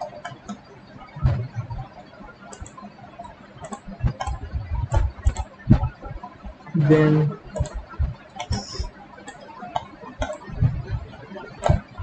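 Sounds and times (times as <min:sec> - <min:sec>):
computer mouse clicks: 0:00.0 - 0:00.6, 0:02.5 - 0:05.9, 0:07.4 - 0:10.7, 0:11.6 - 0:12.0.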